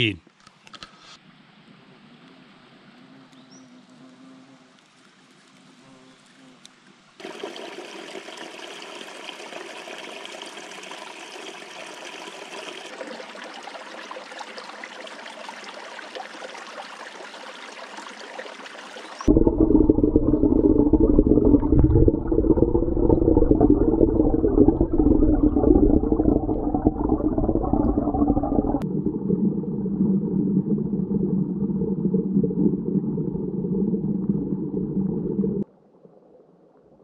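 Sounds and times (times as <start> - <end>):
creek running over rocks: 7.2 - 19.3.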